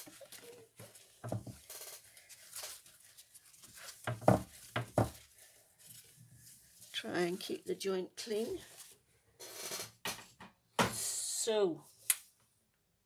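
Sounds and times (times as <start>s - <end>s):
kitchen roll rubbing on mat: 2.3s - 7.7s.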